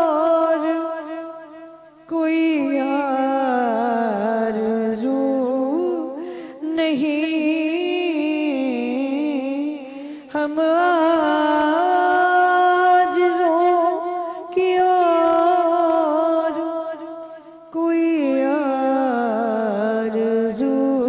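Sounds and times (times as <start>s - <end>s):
woman singing unaccompanied: 0.0s - 21.0s.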